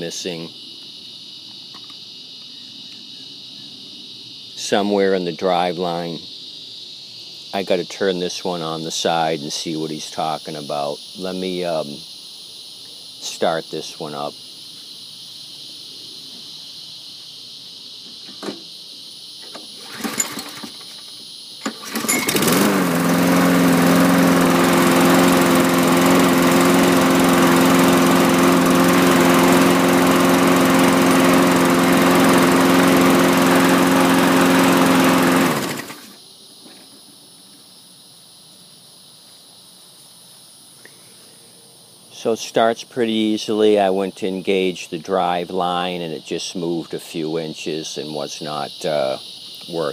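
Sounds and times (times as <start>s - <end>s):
lawn mower engine pull-started: 19.4s - 36.2s
lawn mower engine running: 19.5s - 36.2s.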